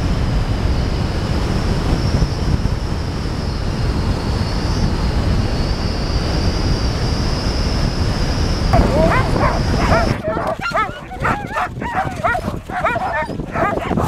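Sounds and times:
wind buffeting microphone: 0:06.2 - 0:14.0.

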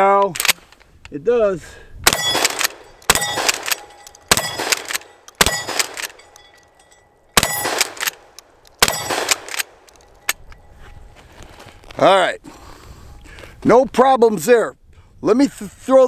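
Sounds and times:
shotgun blasts: 0:02.0 - 0:06.2, 0:07.4 - 0:09.8.

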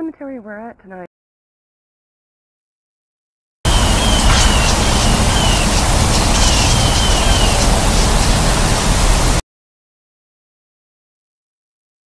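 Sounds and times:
bird chirping: 0:03.7 - 0:09.1
wind buffeting microphone: 0:03.7 - 0:09.4.

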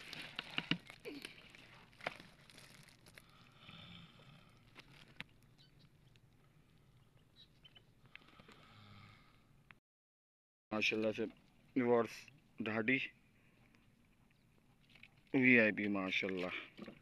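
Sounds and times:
cloth and plastic sack rustling: 0:00.0 - 0:03.2.

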